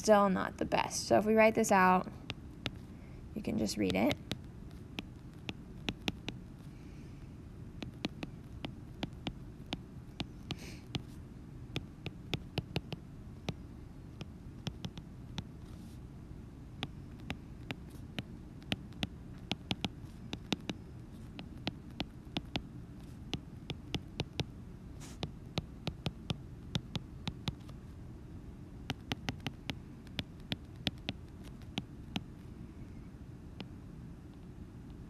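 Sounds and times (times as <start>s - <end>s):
steady low hum: 0.0s - 35.0s
stylus tapping on glass screen: 5.5s - 6.4s, 7.8s - 10.3s.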